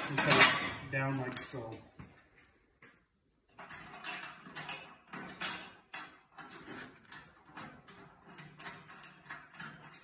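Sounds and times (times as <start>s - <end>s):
metal bolt and nut clinking: 0.0s - 1.9s, 2.9s - 10.0s.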